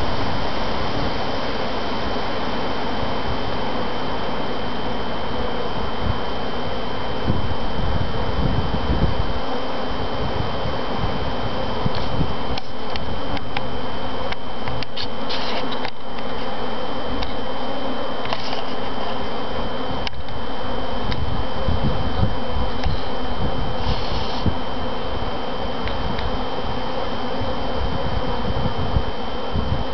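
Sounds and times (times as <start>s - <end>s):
honey bees buzzing: 0.0s - 29.9s.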